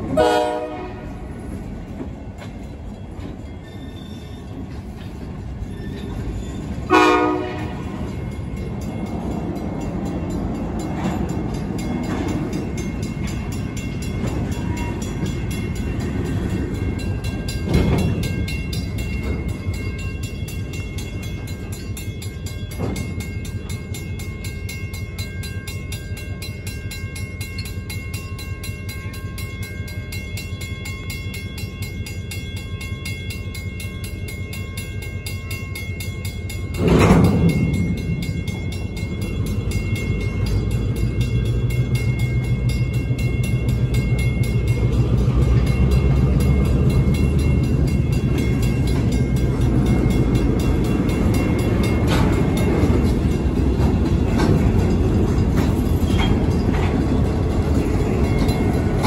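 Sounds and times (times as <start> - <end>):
crossing bell ringing: 0.0 - 59.0
train cars rumbling and clanking: 0.0 - 59.0
locomotive horn blast: 0.1 - 1.3, 6.9 - 8.0.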